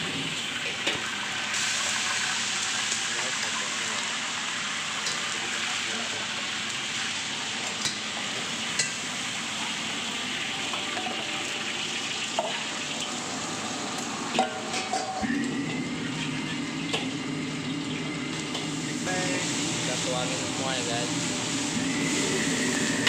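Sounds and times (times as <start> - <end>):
liquid sizzling and bubbling in pot: 0.0 - 23.0.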